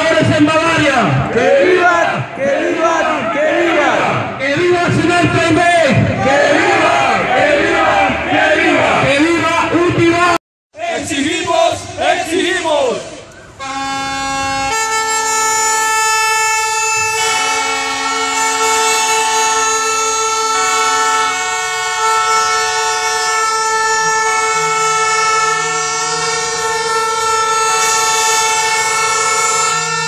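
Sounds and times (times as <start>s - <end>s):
plastic horns blowing: 13.0s - 30.0s.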